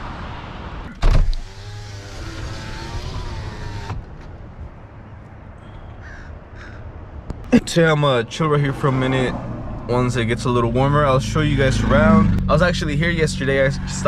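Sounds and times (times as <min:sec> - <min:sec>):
car road noise: 0:00.0 - 0:14.0
power window motor whirring: 0:01.1 - 0:04.3.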